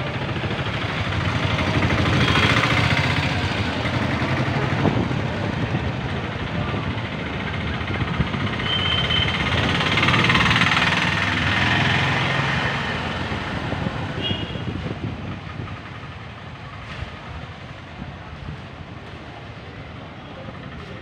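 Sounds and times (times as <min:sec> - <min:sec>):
vehicle engine passing: 0:07.8 - 0:14.2.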